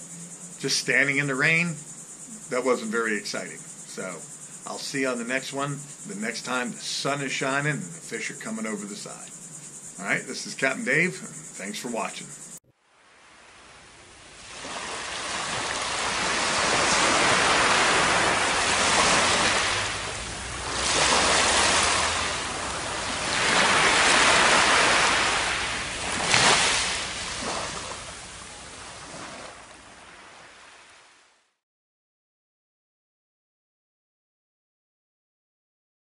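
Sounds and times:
surf washing up on beach: 12.9s - 31.3s.

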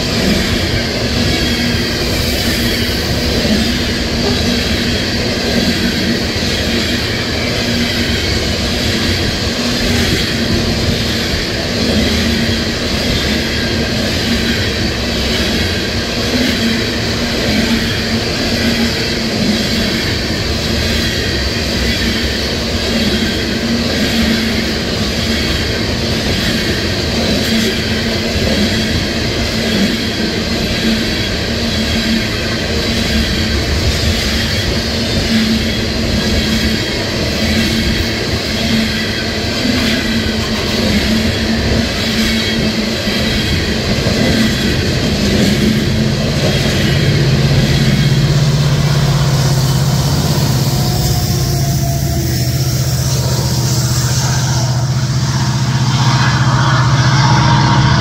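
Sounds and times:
freight train rumbling past: 0.0s - 58.0s
metallic wheel squeal: 30.8s - 58.0s.

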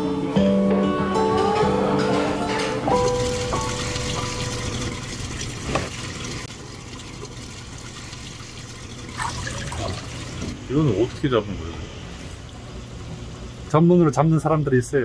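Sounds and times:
water running and splashing: 3.0s - 10.6s.

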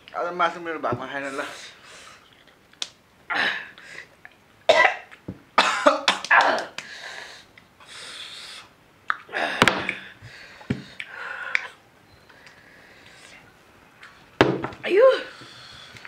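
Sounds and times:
person coughing: 4.7s - 6.8s.

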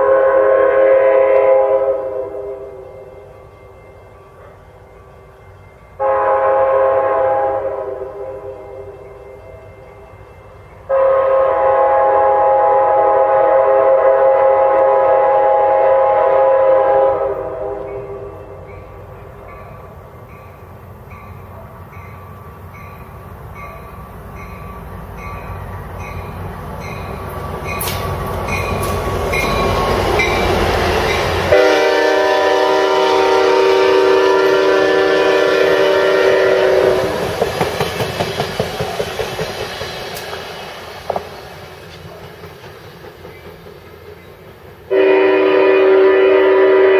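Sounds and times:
train horn blasts: 0.0s - 3.6s, 6.0s - 10.1s, 10.8s - 19.4s, 28.7s - 37.3s, 44.9s - 46.9s
train rumble: 0.0s - 46.9s
train wheels clickety-clack: 18.7s - 32.0s, 35.7s - 45.0s.

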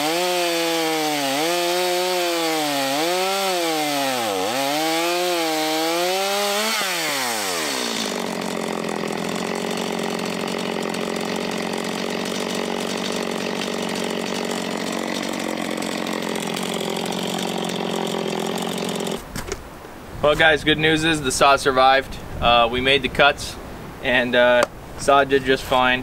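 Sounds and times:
chainsaw revving and idling: 0.0s - 19.2s.

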